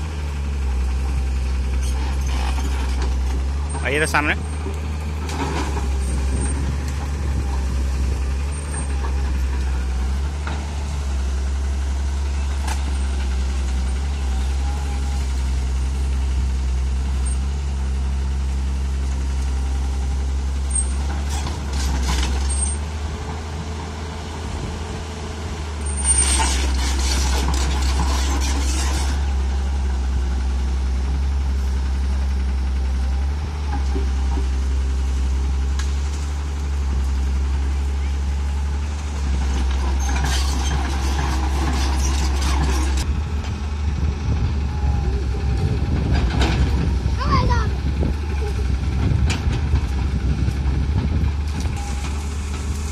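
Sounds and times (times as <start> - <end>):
excavator diesel engine humming: 0.0 - 52.9
hissing and rattling: 25.8 - 29.4.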